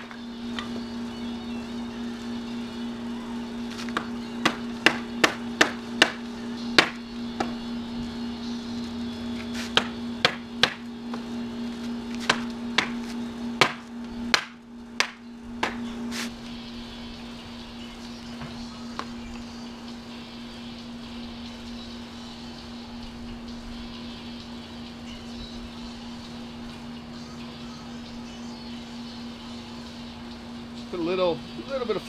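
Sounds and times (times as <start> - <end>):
steady low hum: 0.0 - 32.0
hammer whacking wooden pallet: 4.0 - 6.2, 9.8 - 10.8, 13.6 - 15.8.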